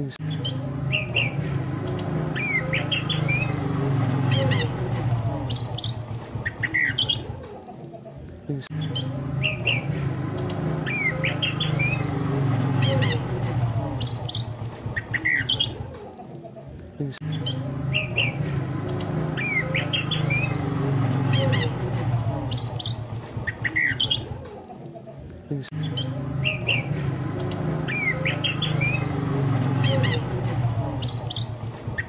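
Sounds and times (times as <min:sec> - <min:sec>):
thrush song whistles and chirps: 0:00.2 - 0:07.2, 0:08.8 - 0:15.7, 0:17.3 - 0:24.2, 0:25.8 - 0:32.0.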